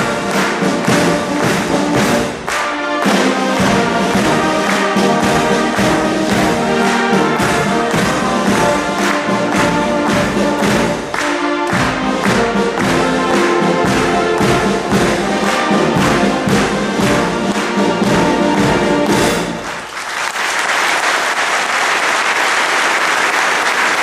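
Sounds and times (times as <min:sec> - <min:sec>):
military band playing a march: 0:00.0 - 0:20.0
audience applause: 0:00.0 - 0:24.0.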